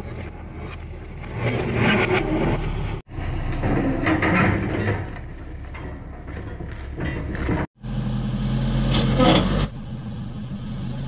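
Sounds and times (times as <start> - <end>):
bulldozer diesel engine running: 0.0 - 11.0.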